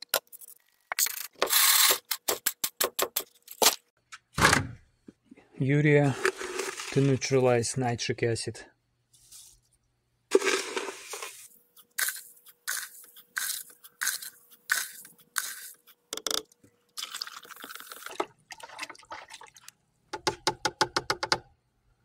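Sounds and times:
scoop scraping granules: 0:06.0 - 0:07.4, 0:10.3 - 0:16.0.

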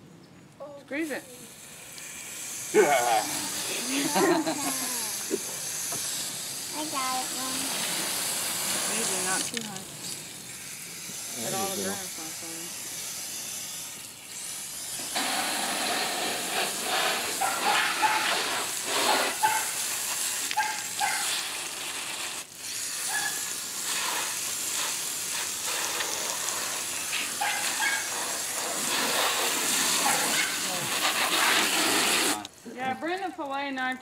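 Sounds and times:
hose spray nozzle hissing: 0:01.2 - 0:33.2.

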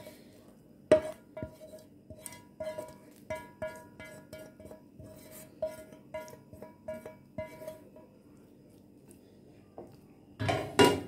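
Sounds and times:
spatula scraping frying pan: 0:00.0 - 0:00.3, 0:00.9 - 0:08.0.

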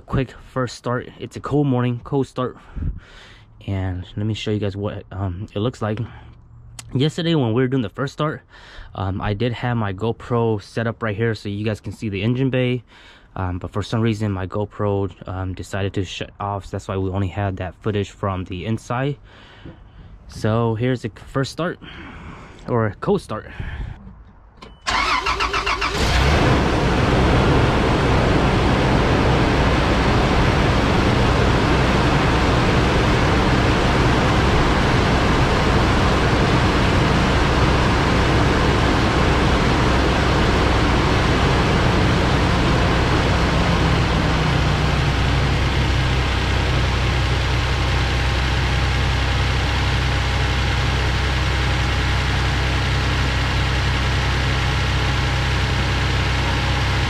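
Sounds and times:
engine running at fast idle: 0:24.9 - 0:57.0.

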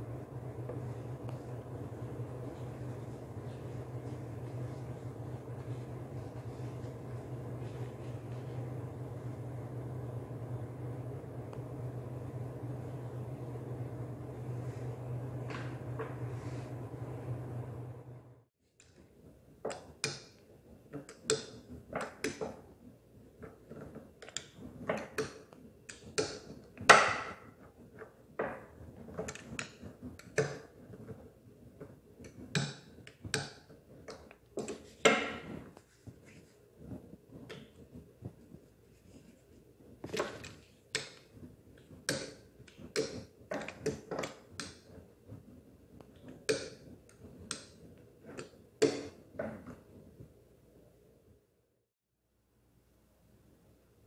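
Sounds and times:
dough roller clicking and knocking: 0:18.8 - 0:38.8, 0:39.8 - 0:50.3.

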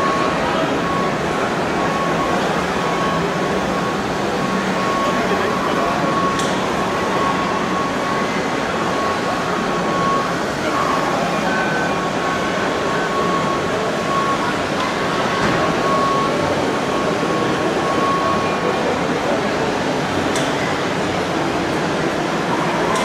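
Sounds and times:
crowd chatter: 0:00.0 - 0:23.0
thin steady whine: 0:00.0 - 0:23.0
short high beeps: 0:01.8 - 0:18.8.

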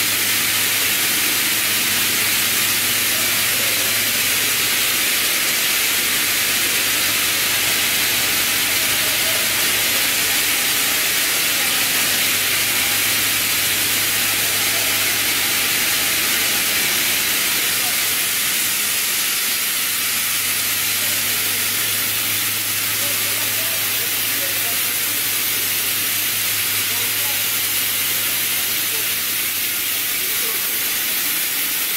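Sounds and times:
loud steady air hiss: 0:00.0 - 0:31.9.

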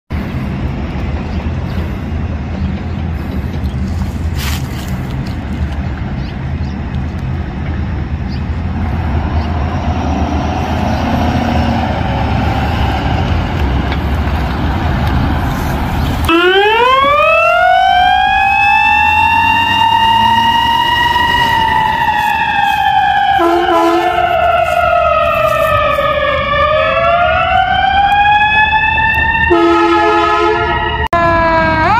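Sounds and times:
ambulance engine rumbling: 0:00.1 - 0:31.9
siren wailing: 0:16.2 - 0:31.9.

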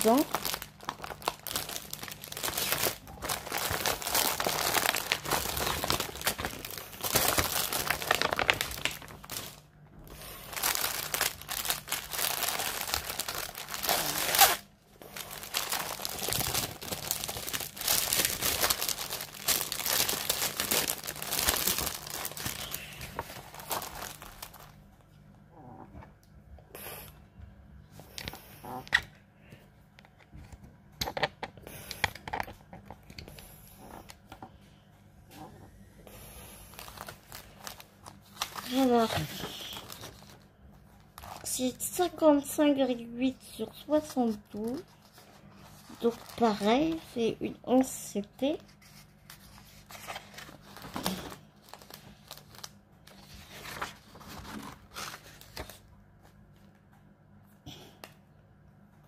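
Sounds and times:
plastic packaging crinkling: 0:00.0 - 0:24.8, 0:36.4 - 0:56.7.

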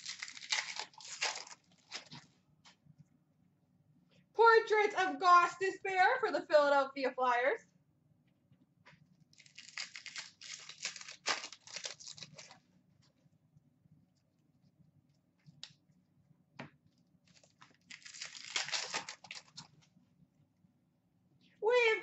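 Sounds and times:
foil wrapper crinkling and tearing: 0:00.0 - 0:02.3, 0:09.4 - 0:12.6, 0:17.2 - 0:19.8.

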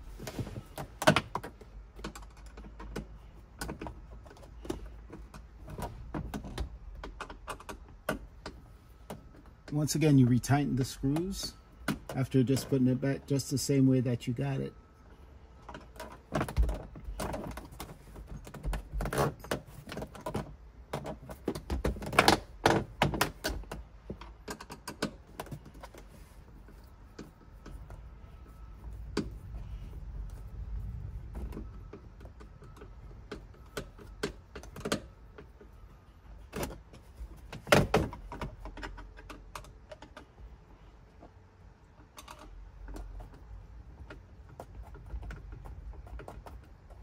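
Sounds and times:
plastic clicks and knocks: 0:15.6 - 0:26.1, 0:36.5 - 0:40.4.

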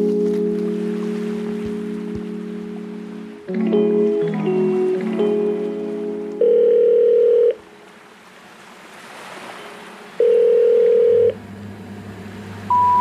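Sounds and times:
telephone ringback tone: 0:06.4 - 0:07.6, 0:10.2 - 0:11.4, 0:12.7 - 0:13.0.

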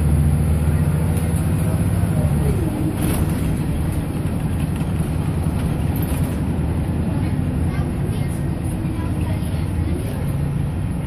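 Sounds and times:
bus diesel engine running: 0:00.0 - 0:11.0.

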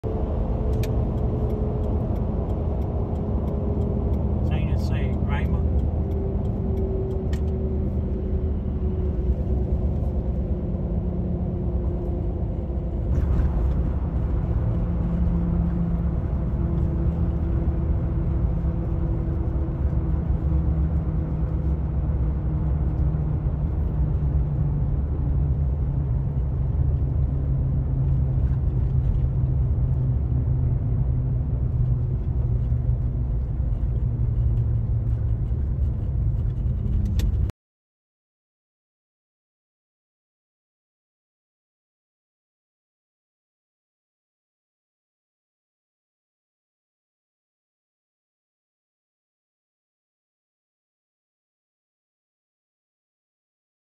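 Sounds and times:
car tyre and engine rumble: 0:00.0 - 0:37.5.

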